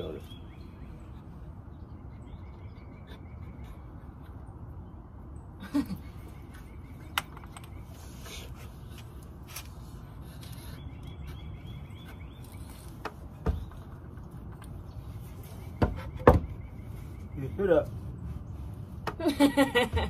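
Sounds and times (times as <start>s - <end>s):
outdoor background noise: 0.0s - 20.0s
sharp knocks: 15.8s - 16.6s.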